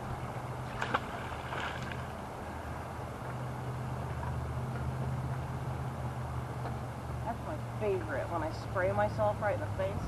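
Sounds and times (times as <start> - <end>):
low engine hum: 0.0 - 10.0
magnet splashing into pond: 0.6 - 2.2.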